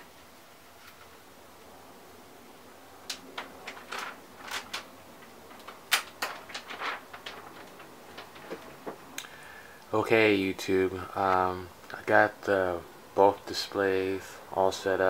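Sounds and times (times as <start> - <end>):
plastic film peeling crinkles: 3.1 - 9.2.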